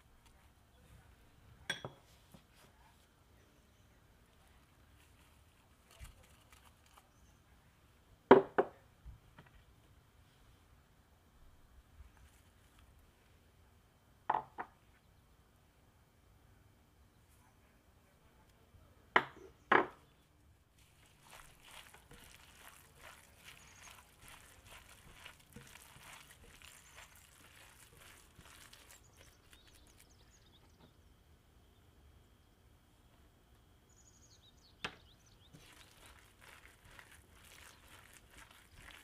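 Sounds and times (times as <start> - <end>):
hand squishing minced meat: 20.7 - 30.4, 35.4 - 39.0.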